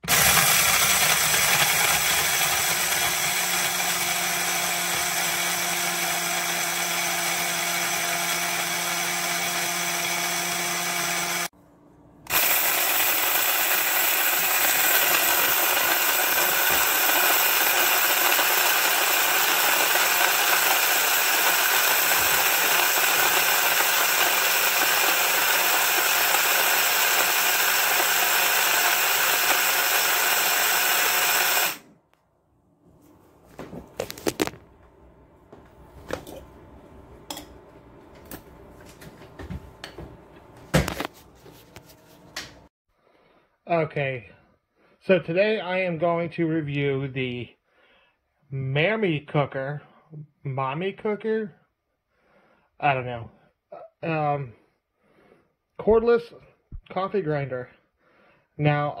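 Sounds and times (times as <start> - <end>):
coffee grinder motor whirring: 0.0 - 11.5, 12.3 - 31.8, 34.0 - 34.6.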